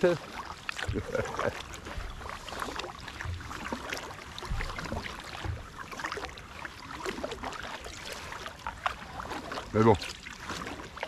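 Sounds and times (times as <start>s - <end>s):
paddle splashing in water: 0.0s - 11.0s
dull low thumps: 0.8s - 2.3s, 4.3s - 5.9s.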